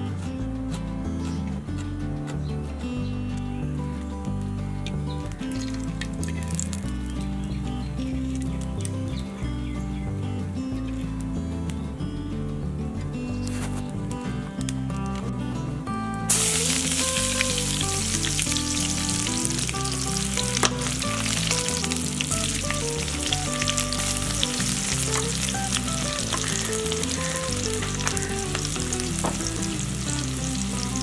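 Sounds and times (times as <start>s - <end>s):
background music: 0.0s - 31.0s
oil popping: 4.9s - 7.3s, 16.3s - 31.0s
onions sizzling in hot oil: 16.3s - 31.0s.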